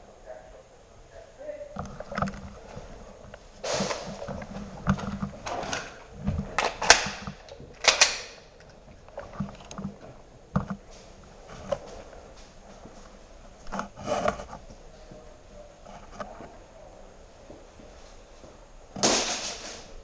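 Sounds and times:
sharp cracks: 0:06.6 - 0:08.7, 0:19.0 - 0:20.0.

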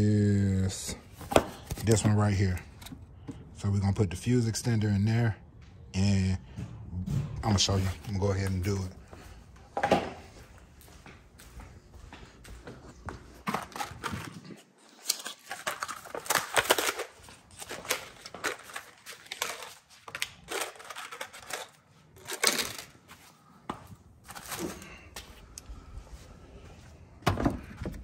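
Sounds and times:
rustling and scraping handling noises: 0:00.8 - 0:03.5, 0:12.3 - 0:27.0.

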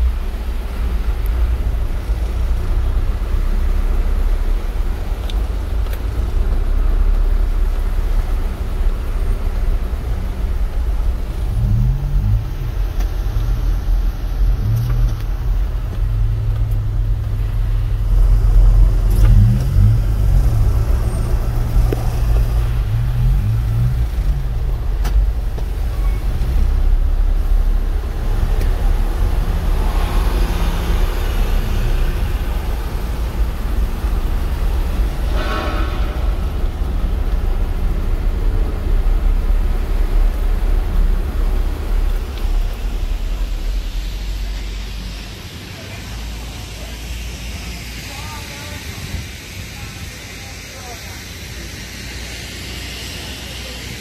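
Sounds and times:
vehicle engine rumble: 0:00.0 - 0:54.0.

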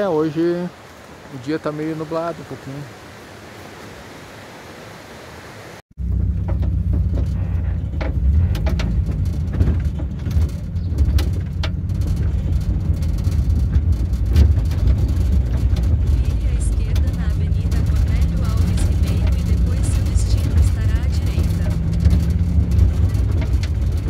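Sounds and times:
outdoor hiss: 0:00.0 - 0:05.8
van engine and road rumble: 0:05.9 - 0:24.0
rattles and knocks: 0:06.0 - 0:24.0.

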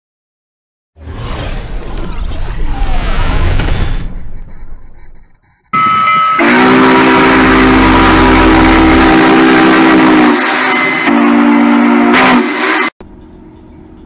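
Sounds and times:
train horn blasts: 0:05.8 - 0:13.0.

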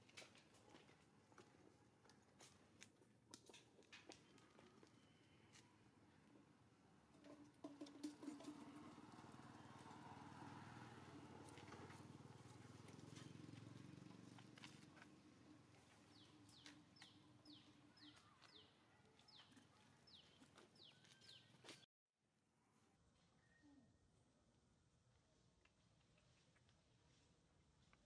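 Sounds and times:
distant motor vehicle hum: 0:07.2 - 0:17.8.

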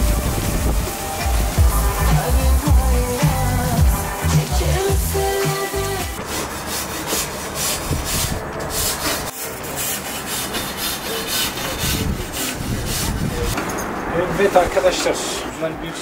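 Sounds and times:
background music: 0:00.0 - 0:06.2
brush scrubbing grill grates: 0:00.0 - 0:13.6.

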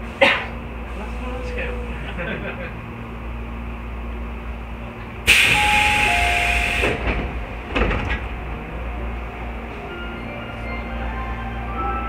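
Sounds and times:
air hiss of train doors: 0:05.2 - 0:07.2
two-note door chime: 0:05.6 - 0:06.9
doors knocking open: 0:06.8 - 0:08.4.

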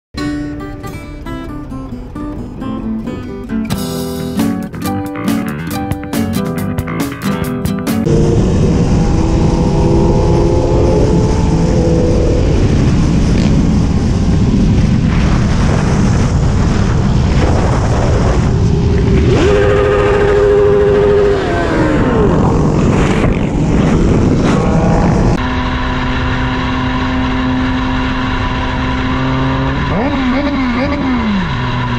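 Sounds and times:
wind noise on microphone: 0:08.0 - 0:25.5
motorcycle engines revving: 0:08.0 - 0:31.9.

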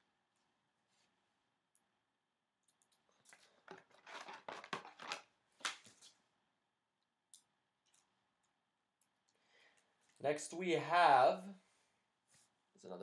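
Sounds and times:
plastic sleeve scrapes and rustles: 0:03.3 - 0:05.2.

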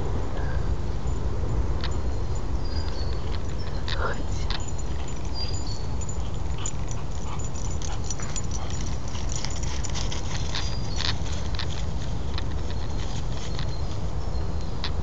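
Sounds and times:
low microphone rumble: 0:00.0 - 0:06.6
dry leaves crackling underfoot: 0:08.8 - 0:14.3.

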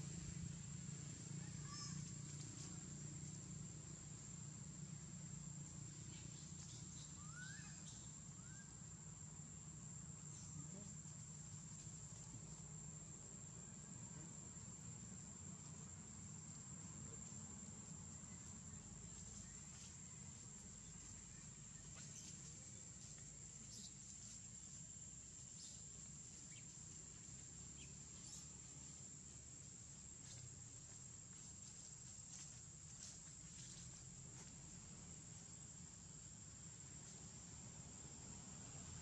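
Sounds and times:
low background rumble: 0:00.0 - 0:10.6
high-pitched insect trill: 0:00.0 - 0:39.0.

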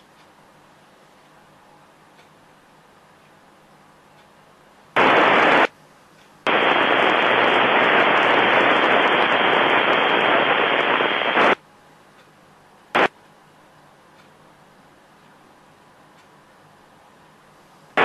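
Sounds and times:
radio squelch hiss bursts: 0:05.0 - 0:05.7, 0:06.4 - 0:11.6.

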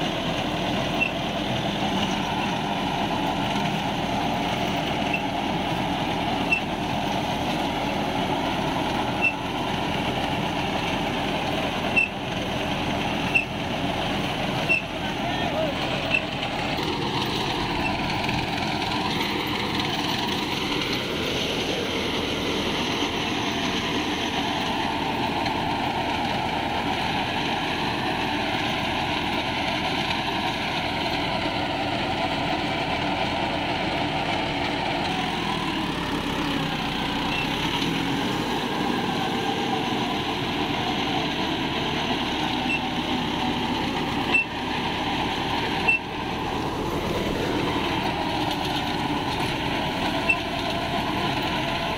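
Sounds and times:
tractor diesel engine under load: 0:00.0 - 0:51.9
rotary tiller chopping soil: 0:34.9 - 0:51.9.

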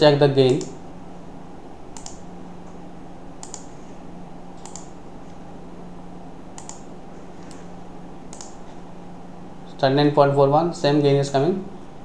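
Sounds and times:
low electrical hum: 0:00.0 - 0:12.0
computer mouse clicking: 0:02.0 - 0:02.2, 0:03.4 - 0:03.7, 0:04.6 - 0:05.0, 0:06.6 - 0:07.6, 0:08.3 - 0:08.6.

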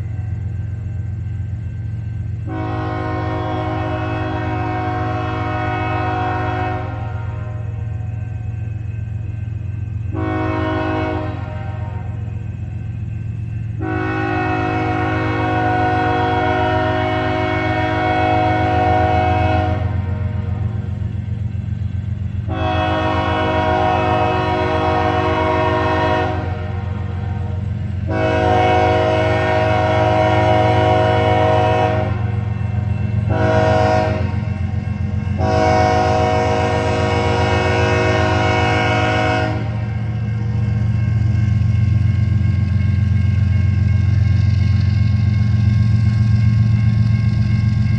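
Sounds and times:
locomotive air horn blasts: 0:02.4 - 0:08.1, 0:10.1 - 0:12.3, 0:13.8 - 0:21.1, 0:22.4 - 0:40.4.

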